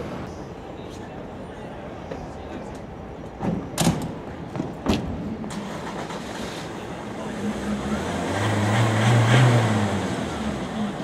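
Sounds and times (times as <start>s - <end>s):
vehicle engine humming: 5.3s - 11.0s.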